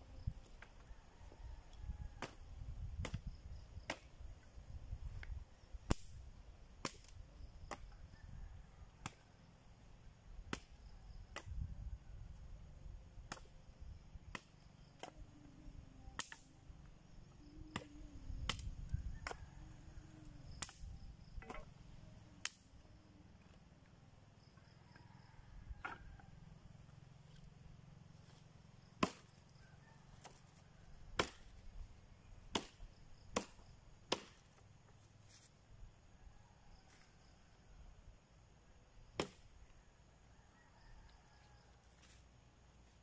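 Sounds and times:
machete chopping branches: 0:03.0 - 0:04.2, 0:05.9 - 0:06.1, 0:10.5 - 0:11.5, 0:20.6 - 0:20.8, 0:29.0 - 0:29.4, 0:31.1 - 0:31.6, 0:32.5 - 0:34.6, 0:39.2 - 0:39.5.

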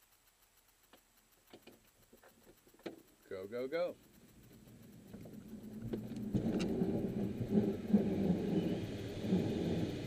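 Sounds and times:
sharp clicks: 0:00.0 - 0:10.0
airframe rumble and rattle: 0:01.8 - 0:10.0
rushing air: 0:05.6 - 0:10.0.

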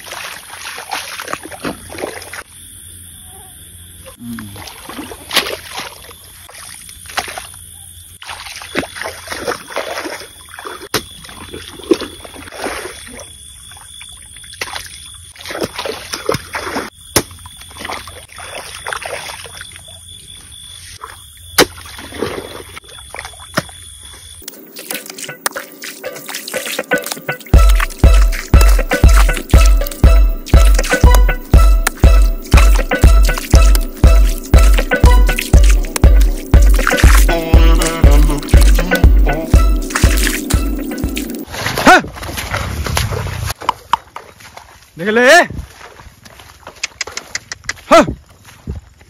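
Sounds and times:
water trickling and splashing: 0:00.0 - 0:02.5, 0:04.4 - 0:49.0
hoe chopping and scraping mud: 0:15.4 - 0:18.2, 0:21.6 - 0:22.6
music with heavy beat: 0:25.0 - 0:41.4.

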